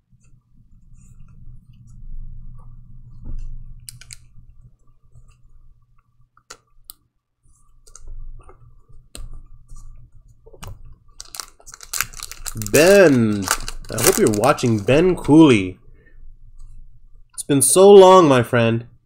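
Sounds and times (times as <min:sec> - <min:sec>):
low steady hum: 0:00.0 - 0:19.0
cards and plastic wrapper handling: 0:10.6 - 0:15.5.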